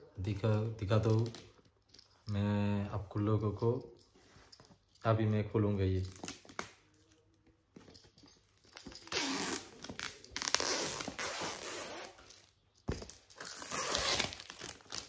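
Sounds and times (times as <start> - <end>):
packaging tearing and crinkling: 13.4 - 15.0.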